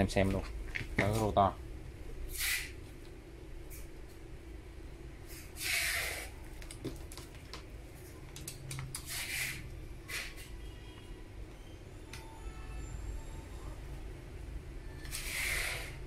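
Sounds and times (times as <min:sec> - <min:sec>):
short hisses: 0:02.3 - 0:02.8, 0:05.3 - 0:06.4, 0:09.1 - 0:10.4, 0:15.1 - 0:16.0.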